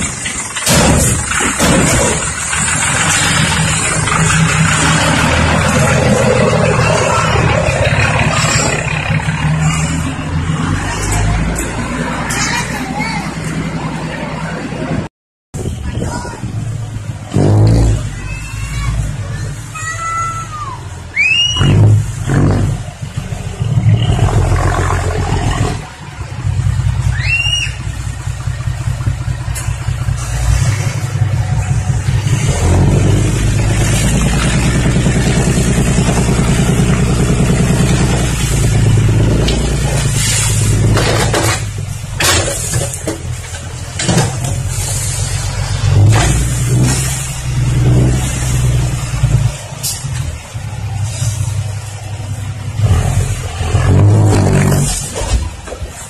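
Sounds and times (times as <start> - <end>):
diesel truck engine running: 0.0 - 56.0
short rising whistles: 21.1 - 21.7, 27.1 - 27.8
soil sliding and rattling: 39.4 - 43.5, 52.8 - 56.0.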